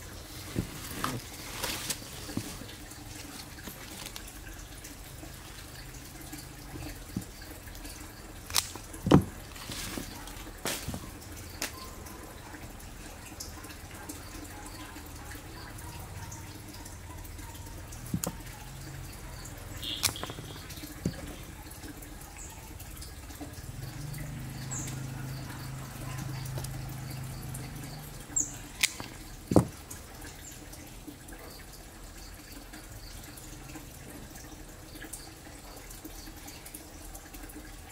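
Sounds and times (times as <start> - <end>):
pruning shears clicking: 8.4 - 11.8, 19.9 - 21.3.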